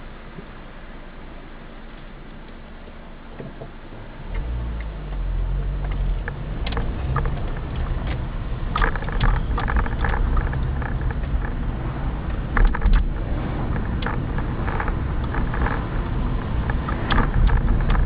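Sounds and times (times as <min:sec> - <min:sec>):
car engine rumble: 0:00.0 - 0:18.0
clicks and rattles over road: 0:03.3 - 0:18.0.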